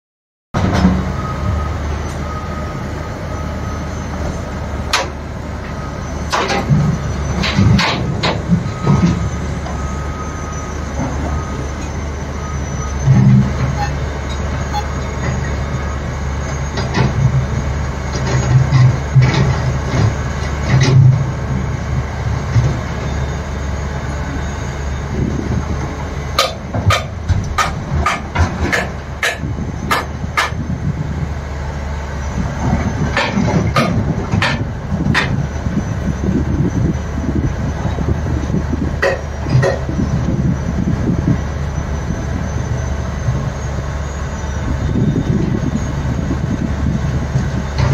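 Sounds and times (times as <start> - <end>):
heavy diesel engines rumbling: 0.6 - 47.9
sharp knocks: 26.4 - 30.6.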